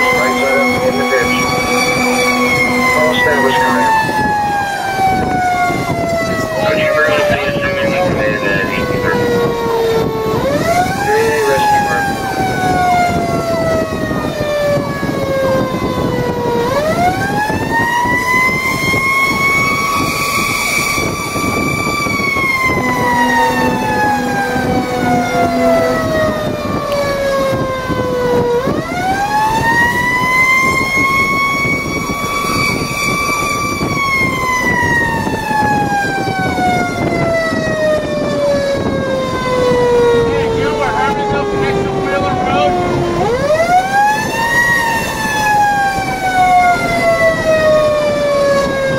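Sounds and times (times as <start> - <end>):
fire engine siren: 0.0 - 48.9
truck engine and road noise: 0.0 - 48.9.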